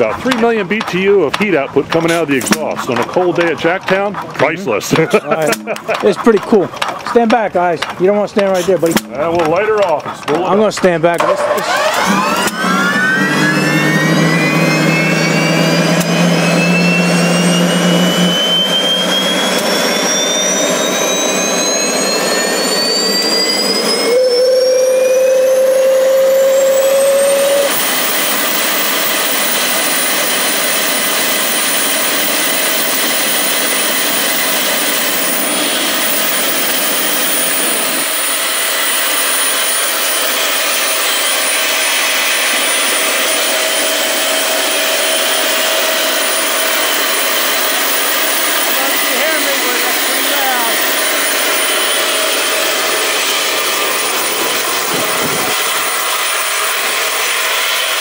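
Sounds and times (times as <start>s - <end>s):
gas turbine whine: 0.0s - 58.0s
rushing exhaust noise: 0.0s - 58.0s.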